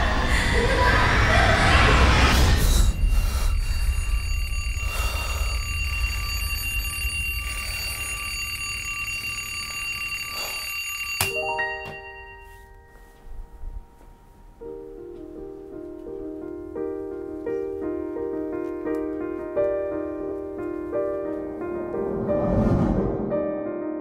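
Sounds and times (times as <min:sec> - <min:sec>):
low rumble: 0:00.0 - 0:08.6, 0:21.9 - 0:23.4
alarm bell ringing: 0:03.0 - 0:13.3
soft piano notes: 0:11.3 - 0:22.1.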